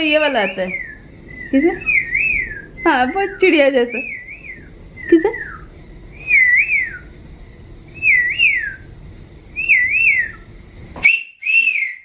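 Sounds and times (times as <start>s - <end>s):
child whistling bird-like call: 11.0s - 12.0s.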